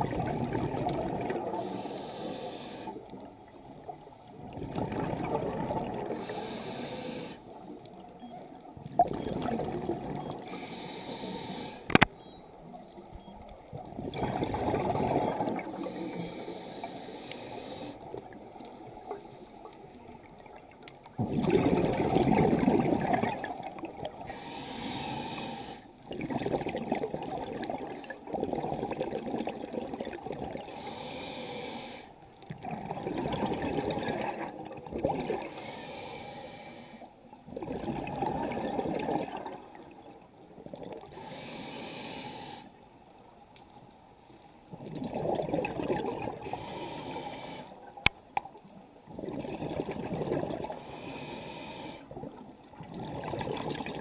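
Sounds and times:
exhaled bubbles underwater: 0:00.0 - 0:01.9, 0:03.8 - 0:06.7, 0:08.7 - 0:10.7, 0:13.2 - 0:16.5, 0:18.0 - 0:24.3, 0:26.0 - 0:30.8, 0:32.5 - 0:35.6, 0:37.4 - 0:41.2, 0:44.7 - 0:46.9, 0:47.8 - 0:51.2, 0:52.1 - 0:54.0
regulator inhalations: 0:01.6 - 0:03.0, 0:06.2 - 0:07.5, 0:10.4 - 0:12.1, 0:15.8 - 0:18.1, 0:24.3 - 0:25.9, 0:30.7 - 0:32.2, 0:35.5 - 0:37.1, 0:41.1 - 0:42.7, 0:46.5 - 0:47.8, 0:50.8 - 0:52.1.

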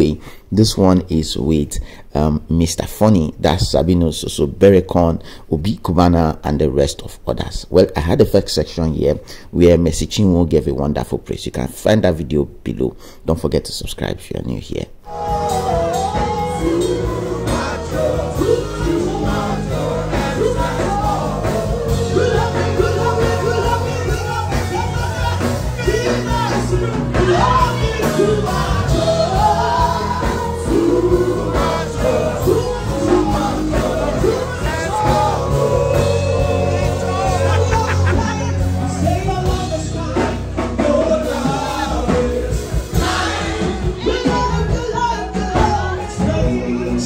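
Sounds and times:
person singing: 0:15.0 - 0:47.0
steady bass line: 0:15.1 - 0:47.0.

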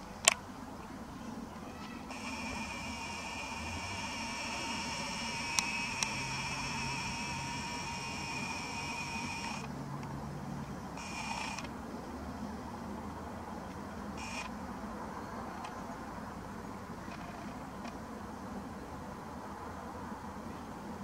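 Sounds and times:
small clicks: 0:01.8 - 0:10.1, 0:11.0 - 0:11.8
camera lens zoom motor whining: 0:02.0 - 0:09.7, 0:11.0 - 0:11.7, 0:14.2 - 0:14.6.

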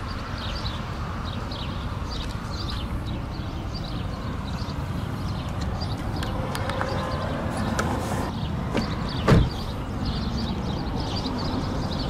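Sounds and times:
car door thumping shut: 0:08.7 - 0:09.7.

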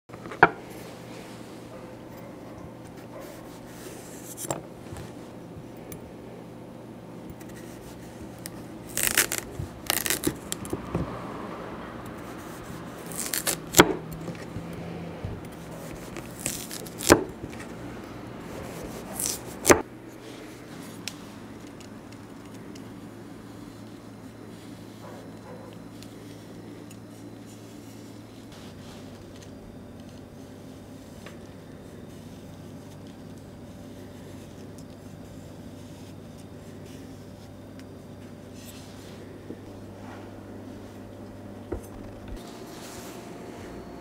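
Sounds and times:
faint steady hum: 0:00.1 - 0:44.0
knife scraping cuts: 0:18.4 - 0:19.8.

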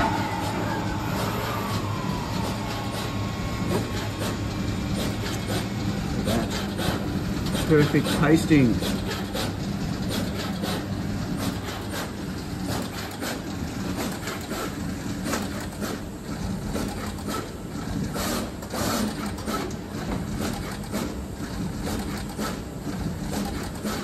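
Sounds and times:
steady low machine hum: 0:00.0 - 0:10.2.

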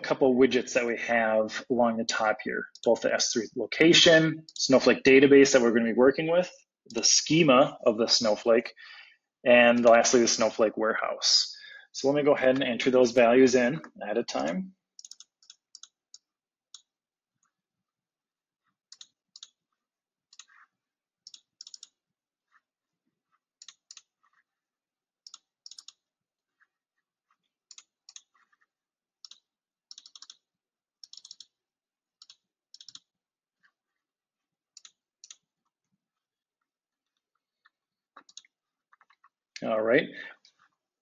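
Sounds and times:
computer keyboard typing: 0:15.0 - 0:16.9, 0:18.9 - 0:19.6, 0:21.2 - 0:22.0, 0:23.6 - 0:24.1, 0:25.3 - 0:26.0, 0:27.7 - 0:28.6, 0:29.2 - 0:31.6, 0:32.2 - 0:33.1, 0:34.7 - 0:35.5, 0:38.2 - 0:39.2.

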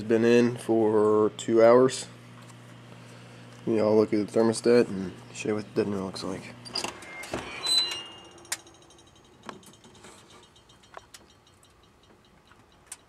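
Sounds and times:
oven door squeak: 0:06.6 - 0:10.8
light sharp clicks and clinks: 0:08.3 - 0:13.0.

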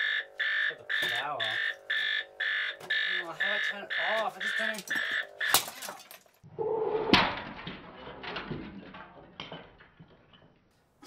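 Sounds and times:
alarm clock radio crashing apart: 0:00.0 - 0:06.4
plastic pieces clattering: 0:04.2 - 0:06.4.

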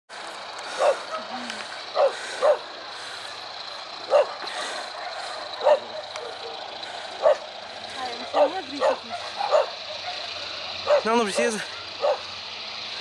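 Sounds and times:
dog barking: 0:00.8 - 0:01.3, 0:02.0 - 0:02.7, 0:04.1 - 0:07.5, 0:08.2 - 0:11.2, 0:12.0 - 0:12.3.

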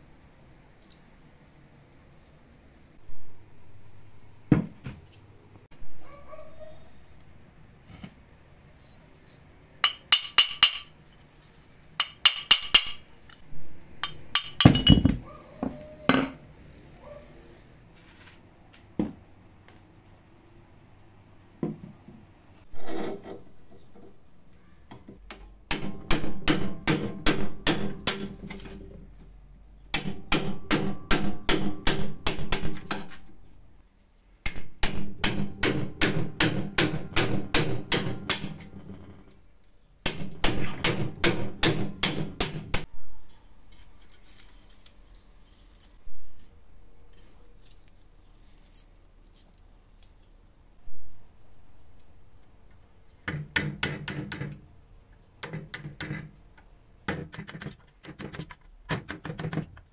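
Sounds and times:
hammer striking metal: 0:09.8 - 0:10.9, 0:14.0 - 0:15.2, 0:25.7 - 0:28.5, 0:29.9 - 0:33.1, 0:34.4 - 0:38.8, 0:40.0 - 0:42.9.

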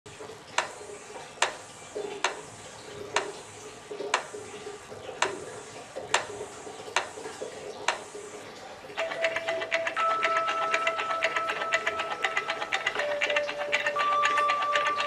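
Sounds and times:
sharp clicks: 0:00.6 - 0:00.8, 0:01.4 - 0:01.6, 0:02.2 - 0:02.5, 0:05.2 - 0:05.5, 0:06.9 - 0:07.2, 0:07.9 - 0:08.1.

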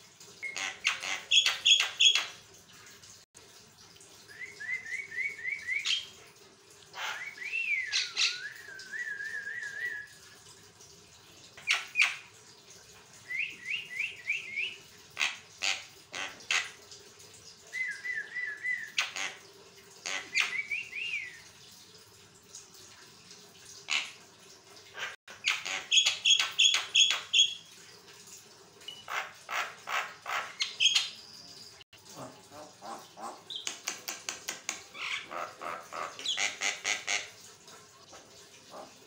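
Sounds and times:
whistled bird notes: 0:04.3 - 0:06.1, 0:07.0 - 0:10.3.

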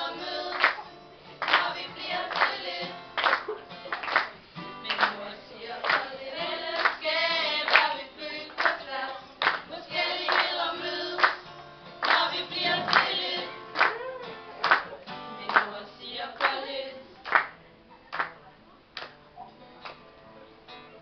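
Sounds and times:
women singing: 0:00.0 - 0:03.3, 0:04.8 - 0:14.0, 0:15.3 - 0:17.2
acoustic guitar: 0:00.0 - 0:21.0
hand claps: 0:00.5 - 0:00.8, 0:01.4 - 0:02.6, 0:03.2 - 0:05.2, 0:05.8 - 0:06.1, 0:06.8 - 0:07.0, 0:07.7 - 0:07.9, 0:08.5 - 0:08.8, 0:09.4 - 0:09.7, 0:10.3 - 0:10.6, 0:11.2 - 0:11.4, 0:12.0 - 0:13.2, 0:13.8 - 0:14.0, 0:14.6 - 0:15.7, 0:16.4 - 0:16.6, 0:17.2 - 0:18.4, 0:19.0 - 0:19.2, 0:19.8 - 0:20.0.

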